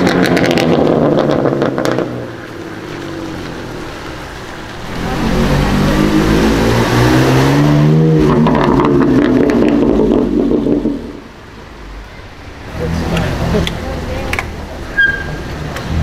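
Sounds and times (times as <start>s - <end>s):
exhaust crackles and pops: 0.0s - 4.8s, 8.2s - 11.3s
car engine accelerating hard: 0.0s - 11.3s.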